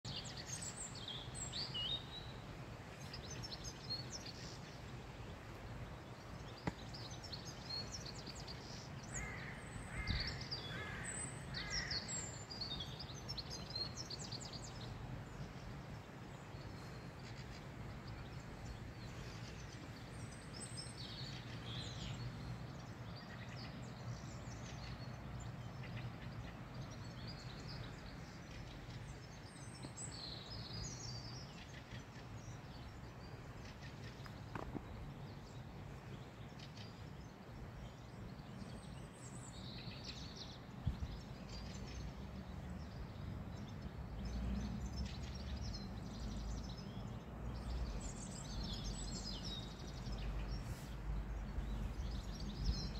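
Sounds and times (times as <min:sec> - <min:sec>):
small birds chirping: 0:00.0 - 0:52.9
crow cawing: 0:09.2 - 0:12.0.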